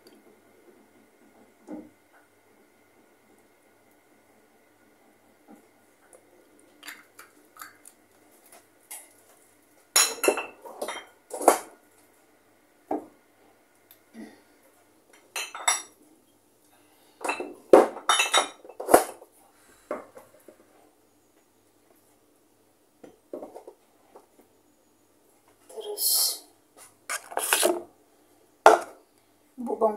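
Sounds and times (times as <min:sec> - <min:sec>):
jars and bottles clinking: 0:10.0 - 0:11.6, 0:15.3 - 0:16.0, 0:17.2 - 0:19.2.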